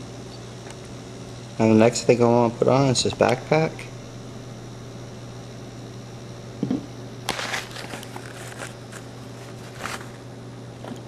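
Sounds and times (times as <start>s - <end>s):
low electrical hum: 0.0s - 11.0s
dull thump on tabletop: 6.6s - 6.9s
sharp knock on tabletop: 6.6s - 6.9s.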